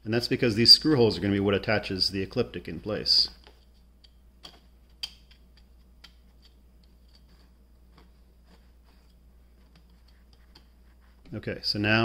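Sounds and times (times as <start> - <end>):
plastic rings clicking and tapping: 3.4 - 8.1.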